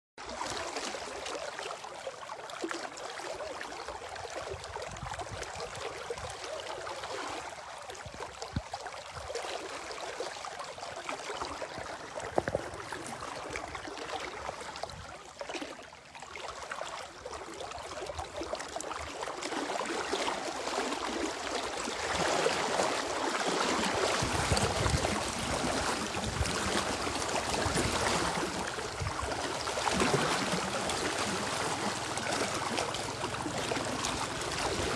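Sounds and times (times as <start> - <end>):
fast-flowing river rushing: 19.0 - 34.9.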